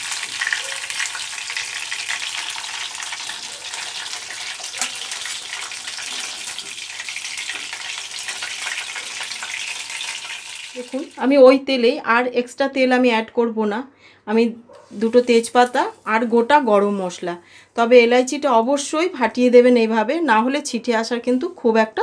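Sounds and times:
oil sizzling and crackling: 0.0s - 11.3s, 14.9s - 16.7s
metal spatula clicks and scrapes: 4.6s - 5.4s.

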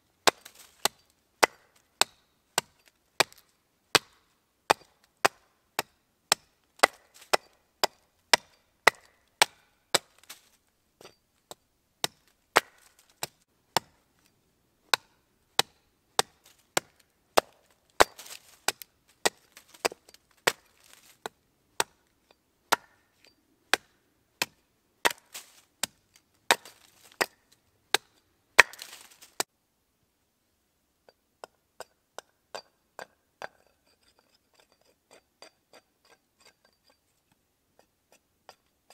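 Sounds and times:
axe chopping wood: 0.2s - 14.3s, 14.9s - 22.1s, 22.7s - 29.5s.

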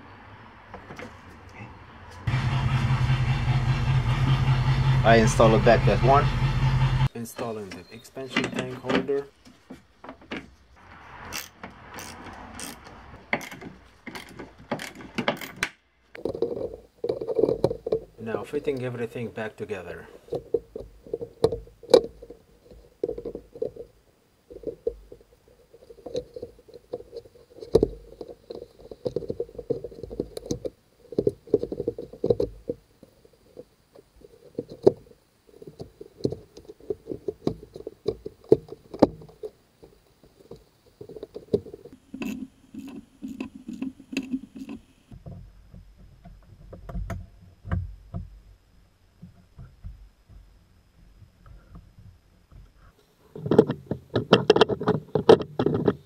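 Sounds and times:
plastic and metal parts knocking: 13.3s - 18.9s, 24.5s - 32.8s, 34.2s - 44.8s, 53.4s - 56.0s.

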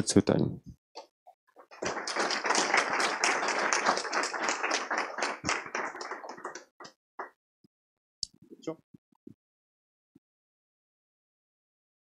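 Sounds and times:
audience applauding: 1.7s - 7.4s.

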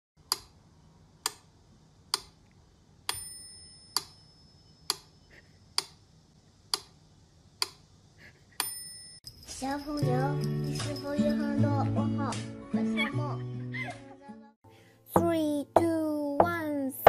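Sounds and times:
metronome bell ringing: 3.1s - 4.9s, 8.6s - 11.9s
metronome ticking: 15.2s - 16.8s.

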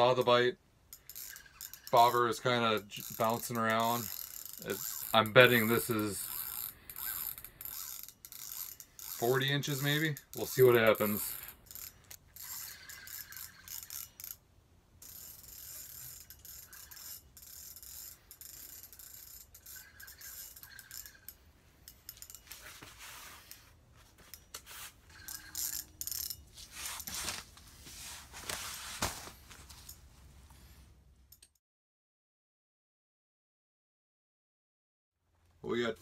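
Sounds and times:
fishing reel ratcheting: 0.1s - 14.4s, 15.0s - 27.3s.

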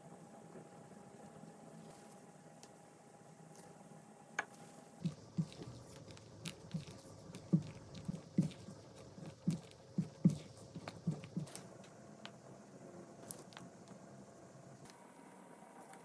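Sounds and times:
spatula squelching in ganache: 5.0s - 11.6s.

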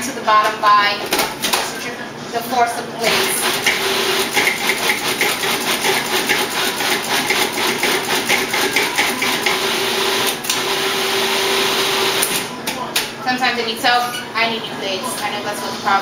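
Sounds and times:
food processor chopping vegetables: 3.1s - 12.4s.

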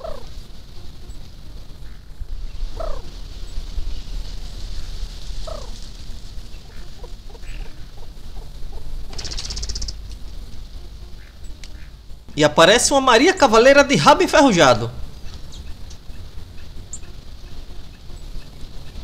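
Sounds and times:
doves cooing: 0.0s - 12.3s
steady high hiss: 0.0s - 19.0s
high rattling burst: 9.0s - 10.6s.

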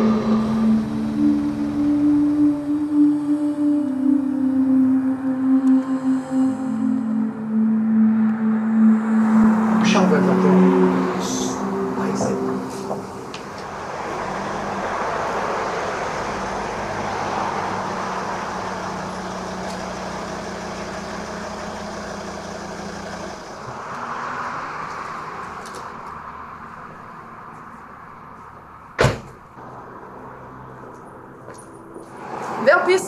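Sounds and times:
car driving up and stopping: 0.0s - 33.0s
car door slam: 29.0s - 29.4s.

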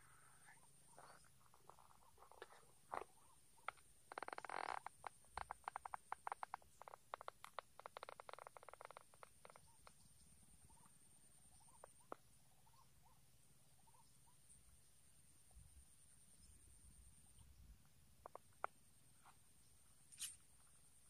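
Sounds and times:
frog calling in clicks: 1.0s - 10.0s.

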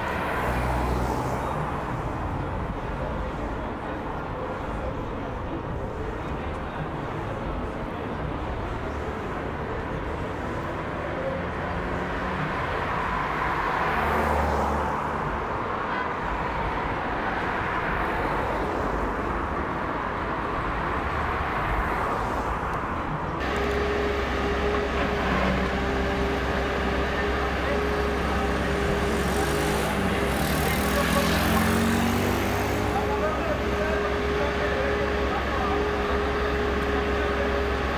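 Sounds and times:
traffic hum: 0.0s - 37.9s
cars driving past: 11.4s - 37.9s
heavy machinery engine running: 23.4s - 37.9s.

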